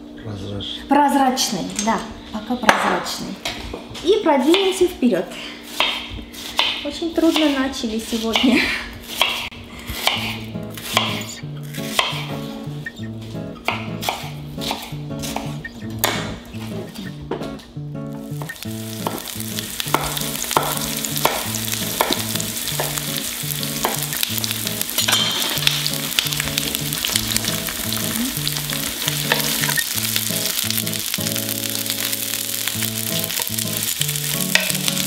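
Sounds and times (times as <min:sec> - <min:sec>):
onions sizzling in a frying pan: 0:18.1 - 0:35.0.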